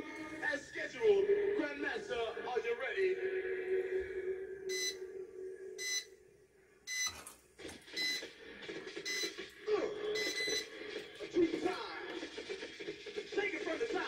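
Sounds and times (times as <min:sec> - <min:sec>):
timer beeping: 0:04.7 - 0:05.0, 0:05.8 - 0:06.1, 0:06.9 - 0:07.3, 0:08.0 - 0:08.3, 0:09.0 - 0:09.4, 0:10.1 - 0:10.7.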